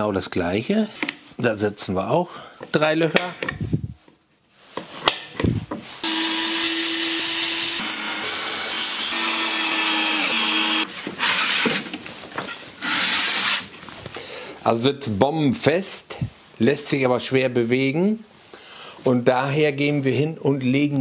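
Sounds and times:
cordless drill drilling: 6.0s - 10.9s.

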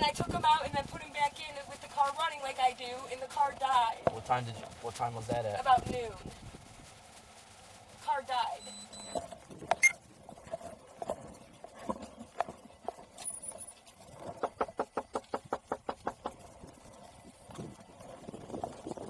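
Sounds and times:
rapid knocking on door: 14.4s - 16.3s.

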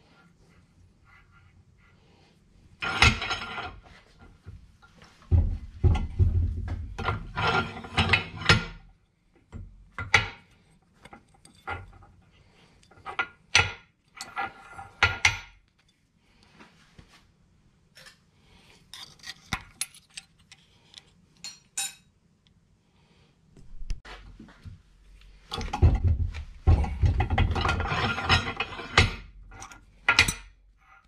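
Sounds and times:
metal parts clinking and scraping: 11.0s - 12.1s, 18.8s - 22.0s, 26.8s - 31.0s.

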